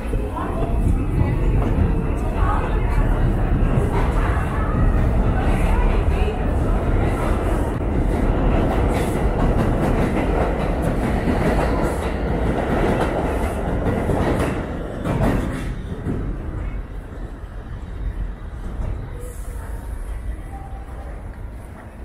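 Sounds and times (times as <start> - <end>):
subway train rumble: 0.0 - 22.0.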